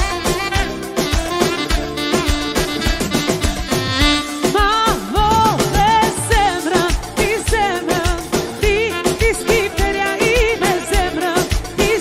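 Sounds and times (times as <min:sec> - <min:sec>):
ornamented melody line: 0:02.7 - 0:07.4
steady drum beat: 0:03.1 - 0:08.4.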